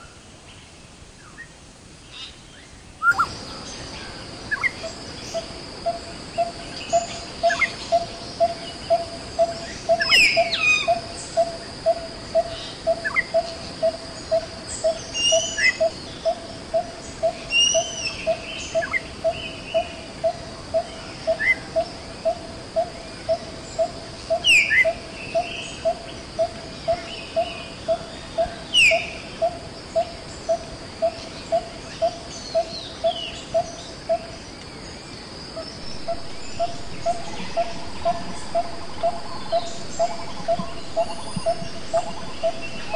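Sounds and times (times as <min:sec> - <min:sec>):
bird chirps: 0:03.0 - 0:13.6, 0:35.6 - 0:42.9
downward-sweeping bird calls: 0:03.0 - 0:19.9, 0:35.6 - 0:42.9
high insect drone: 0:03.0 - 0:42.9
repeated low note: 0:35.8 - 0:42.9.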